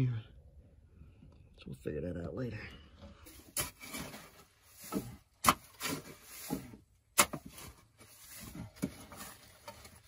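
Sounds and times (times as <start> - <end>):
wooden timbers knocking and scraping: 3.1 - 10.0.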